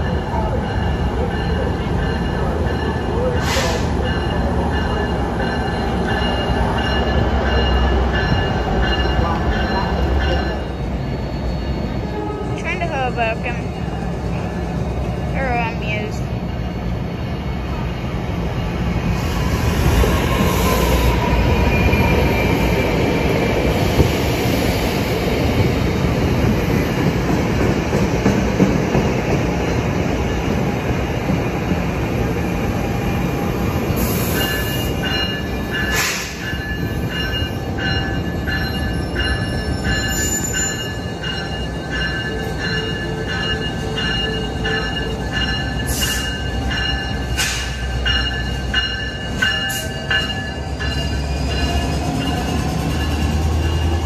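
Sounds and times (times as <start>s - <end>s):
locomotive bell ringing: 0.0s - 18.6s, 33.9s - 54.0s
train rumbling on steel rails: 0.0s - 54.0s.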